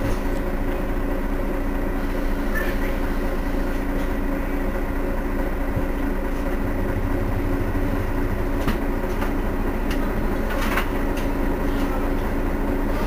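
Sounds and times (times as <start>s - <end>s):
bus engine idling: 0.0s - 13.0s.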